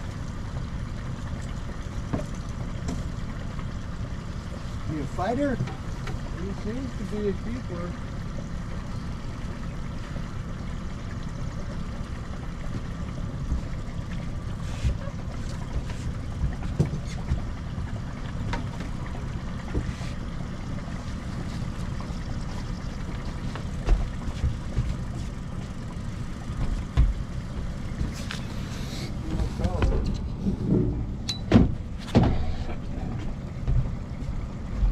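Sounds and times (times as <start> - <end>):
boat motor running: 0.0 - 34.9
low thumps: 29.3 - 32.4.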